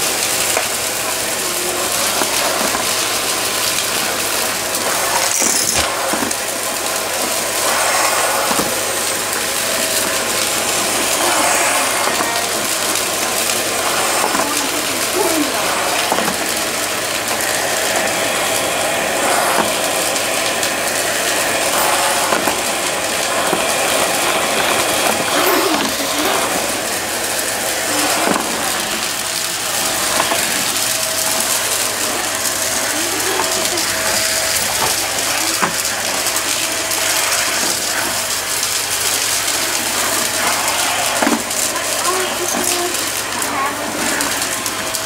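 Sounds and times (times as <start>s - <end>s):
stick vacuum running: 0.0s - 45.0s
debris rattling up vacuum wand: 0.3s - 45.0s.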